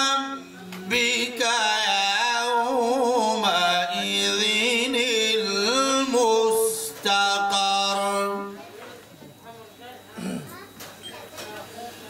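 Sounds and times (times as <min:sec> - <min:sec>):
man reciting melodically: 0:00.0 - 0:08.6.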